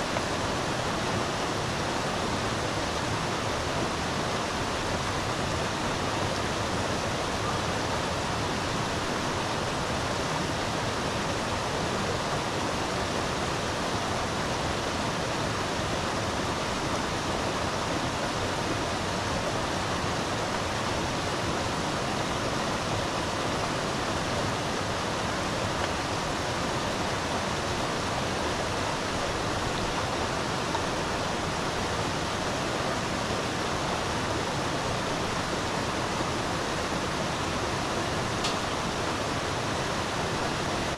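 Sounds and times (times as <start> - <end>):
river flowing: 0.0 - 40.9.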